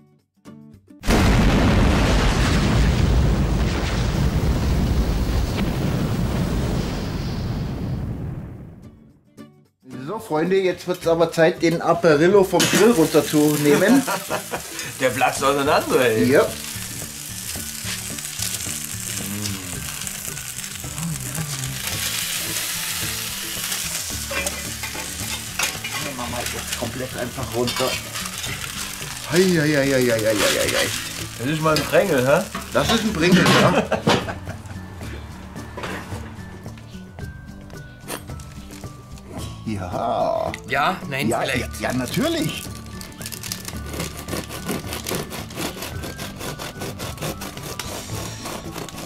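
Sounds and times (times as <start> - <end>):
explosion boom: 1.0 - 9.0
fiery low rumble: 1.1 - 9.0
background music with bass: 8.8 - 49.0
food sizzling on hot plate: 12.2 - 34.8, 41.4 - 49.0.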